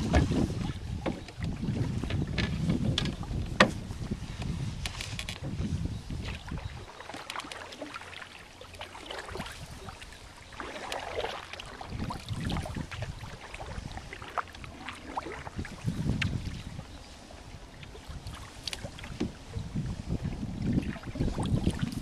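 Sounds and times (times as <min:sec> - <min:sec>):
wind buffeting microphone: 0:00.0 - 0:06.9, 0:11.8 - 0:22.0
paddle strokes in water: 0:00.0 - 0:22.0
water lapping along hull: 0:00.0 - 0:22.0.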